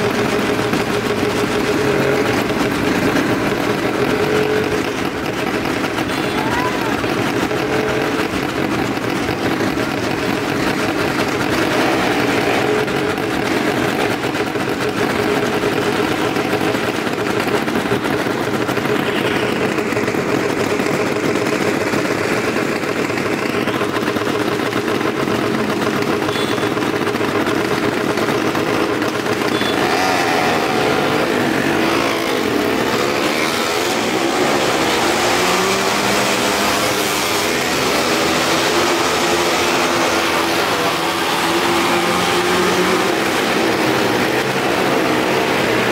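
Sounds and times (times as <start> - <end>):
car and motorcycle engines revving: 0.0 - 45.9.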